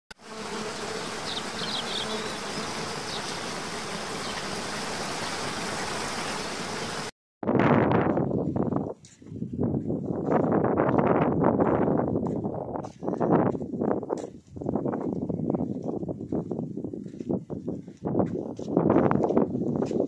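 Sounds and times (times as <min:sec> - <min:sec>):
high bird chirps: 0:01.2 - 0:03.5
wind buffeting microphone: 0:07.4 - 0:20.0.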